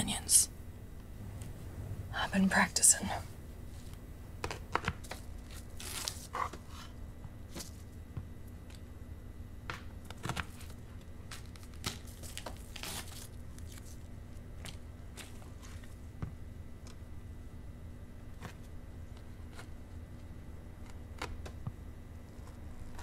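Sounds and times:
low steady hum: 0.0s - 23.0s
dry onion skin crackling: 4.4s - 6.4s, 10.0s - 16.0s.

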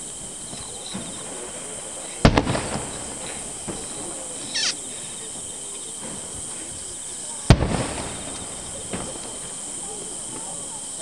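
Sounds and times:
steady high hiss: 0.0s - 11.0s
firework crackling: 1.0s - 4.9s, 7.5s - 10.2s
firework shells bursting: 4.5s - 4.8s
short falling chirp: 4.5s - 4.8s.

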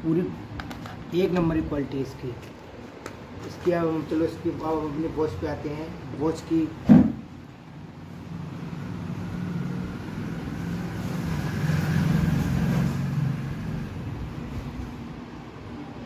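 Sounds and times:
vehicle engine passing by: 8.1s - 15.0s.

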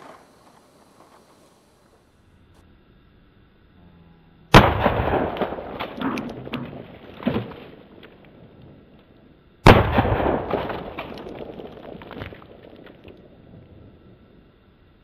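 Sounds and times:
rifle shot: 4.5s - 8.1s, 9.6s - 13.2s.

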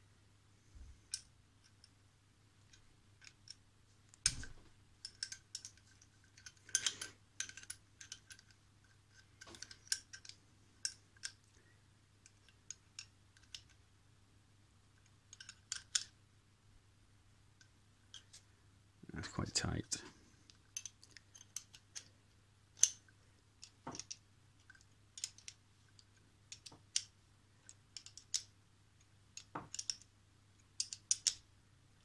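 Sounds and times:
small metal clicks and clinks: 4.2s - 11.6s, 12.2s - 13.8s, 15.0s - 16.1s, 20.5s - 22.1s, 22.8s - 30.1s, 30.7s - 31.4s.

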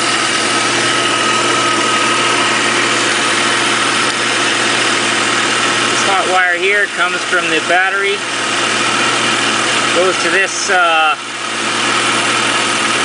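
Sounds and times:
thin steady whine: 0.0s - 13.0s
vehicle engine idling: 0.0s - 13.0s.

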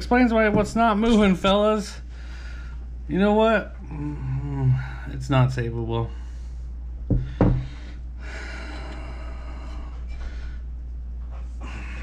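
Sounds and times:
steady low hum: 0.0s - 12.0s
sharp knocks on workbench: 7.1s - 7.7s.

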